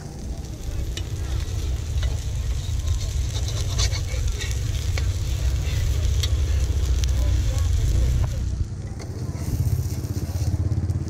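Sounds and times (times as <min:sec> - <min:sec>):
batter sizzling in a wok: 0:00.0 - 0:11.0
low steady rumble: 0:00.0 - 0:11.0
metal spatula scraping a wok: 0:01.0 - 0:06.6.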